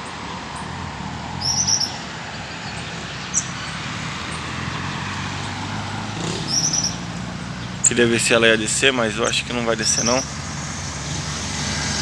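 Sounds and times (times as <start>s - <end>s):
car passing: 0.0s - 12.0s
road traffic hum: 0.0s - 12.0s
bird chirping: 1.4s - 10.4s.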